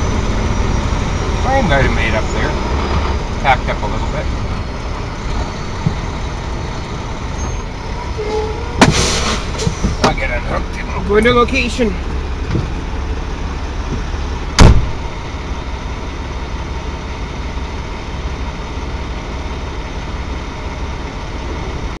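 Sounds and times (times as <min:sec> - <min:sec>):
truck engine idling: 0:00.0 - 0:22.0
sharp bang: 0:08.8 - 0:09.6, 0:14.6 - 0:15.1.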